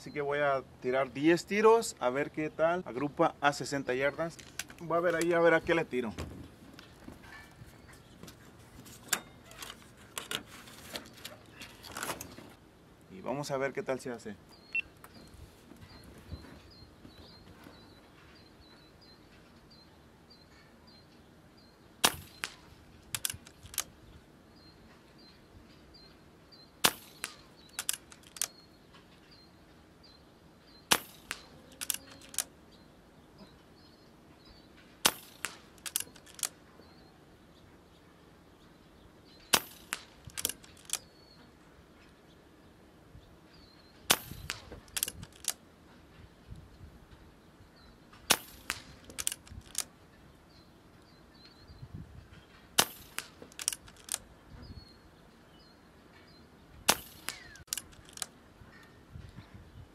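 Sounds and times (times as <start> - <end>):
air rifle shots: 22.0 - 23.9, 26.8 - 28.5, 30.9 - 32.5, 35.0 - 36.5, 39.4 - 41.0, 44.1 - 45.5, 48.2 - 49.9, 52.8 - 54.2, 56.9 - 58.2.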